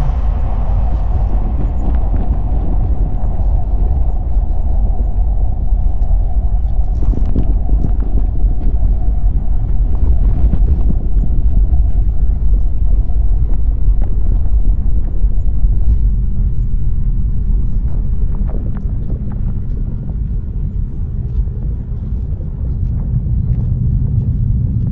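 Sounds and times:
deep rumble: 0.0s - 24.9s.

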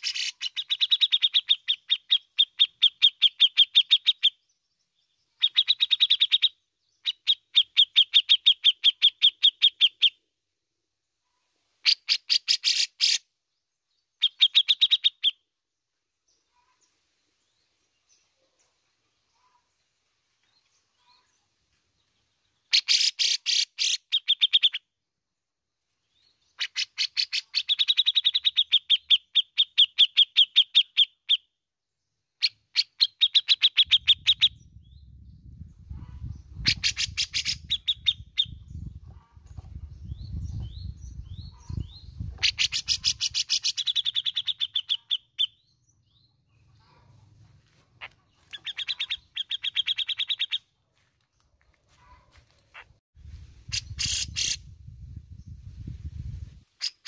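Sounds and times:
bird rasping chatter: 0.0s - 4.3s, 22.7s - 24.8s, 36.0s - 39.6s, 41.5s - 45.5s, 48.0s - 50.6s, 53.7s - 54.6s.

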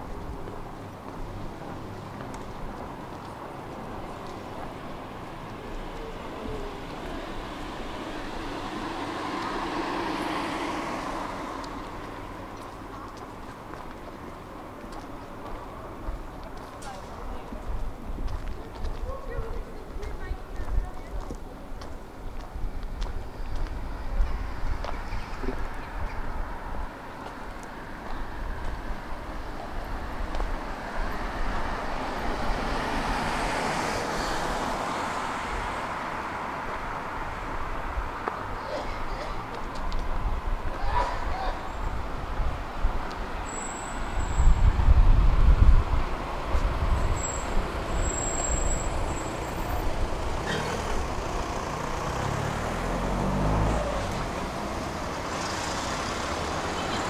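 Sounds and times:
road traffic hum: 0.0s - 57.0s
passing vehicle engine: 3.8s - 12.7s, 30.1s - 39.6s, 43.6s - 57.0s
car driving past: 46.2s - 57.0s.

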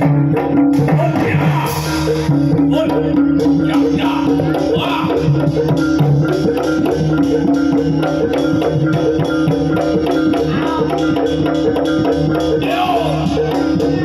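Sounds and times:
hand drum fast beat: 0.0s - 14.0s.

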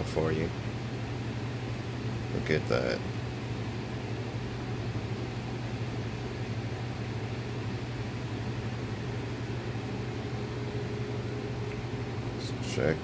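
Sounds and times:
low machine hum: 0.0s - 13.0s.

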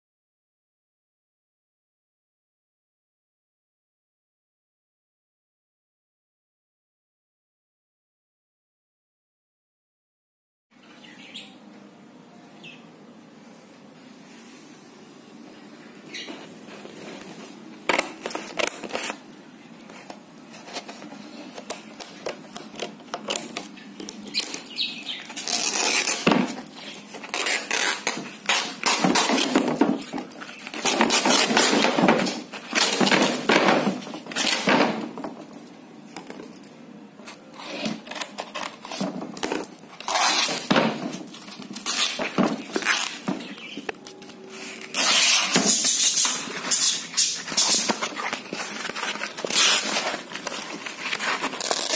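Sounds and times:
canvas tearing and scraping: 25.3s - 26.3s, 27.0s - 29.6s, 39.9s - 40.8s, 41.7s - 43.3s, 44.6s - 51.9s.

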